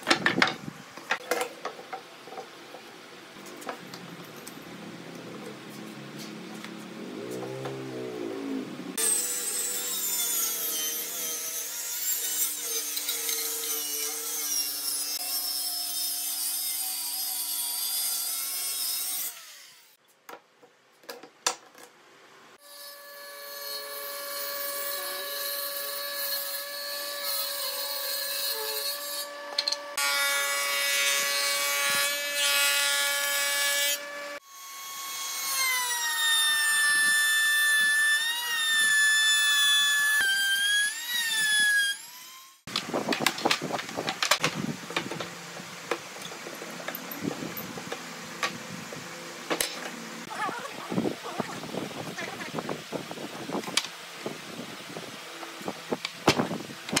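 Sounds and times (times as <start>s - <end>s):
power tool cutting wood: 5.4s - 19.9s, 22.6s - 42.8s.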